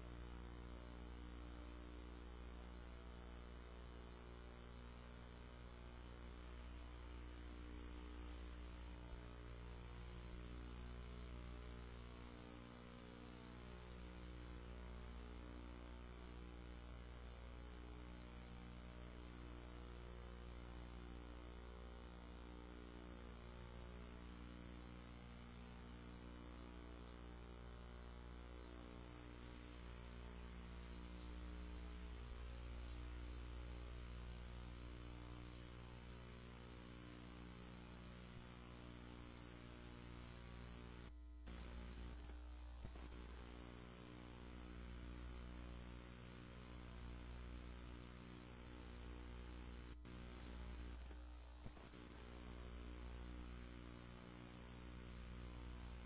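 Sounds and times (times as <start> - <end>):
faint mains hum with hiss: 0.0 - 56.0.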